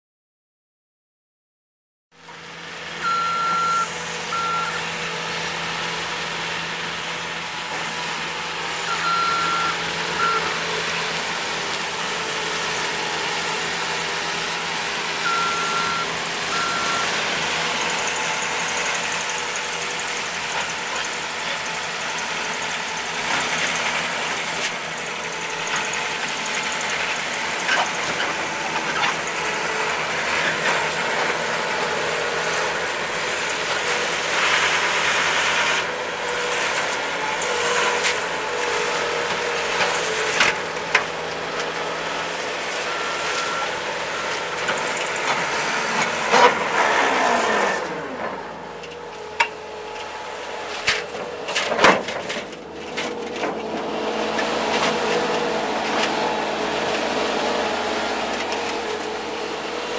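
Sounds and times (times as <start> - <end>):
diesel engine running: 2.2 - 59.9
backup alarm beeping: 3.0 - 4.8.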